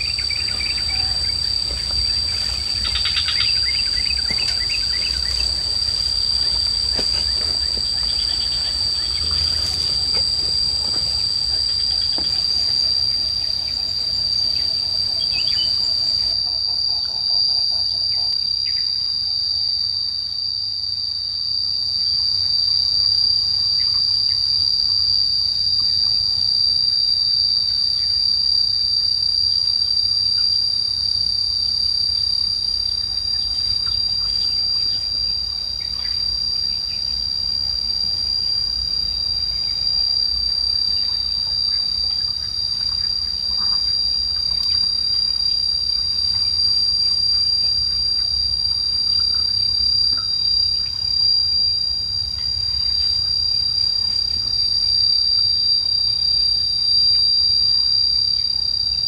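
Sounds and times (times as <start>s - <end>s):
faint bird chirps: 0.0s - 5.7s, 11.7s - 18.9s
insects droning: 0.0s - 59.0s.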